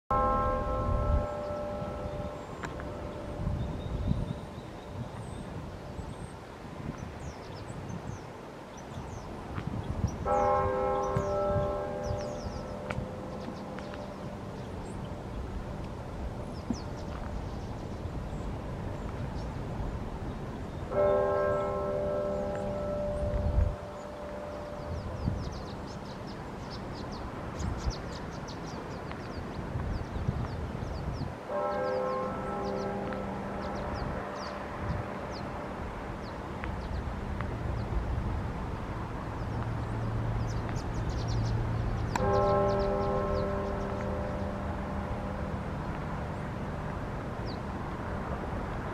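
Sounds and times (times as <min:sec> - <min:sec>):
church bell tolling slowly: 0:00.1 - 0:05.5, 0:10.2 - 0:15.8, 0:20.8 - 0:27.2, 0:31.4 - 0:36.6, 0:41.2 - 0:48.2
steady outdoor rush: 0:00.1 - 0:48.9
small birds chirping: 0:01.2 - 0:15.6, 0:16.4 - 0:19.6, 0:20.2 - 0:34.6, 0:39.4 - 0:44.6.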